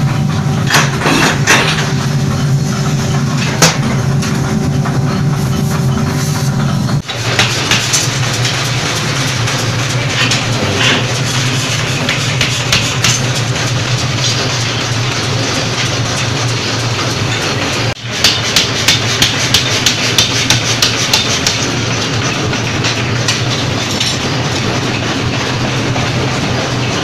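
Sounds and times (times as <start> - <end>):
machinery humming: 0.0 - 27.0
loud clattering din: 6.9 - 27.0
sharp metallic knocks: 7.0 - 24.4.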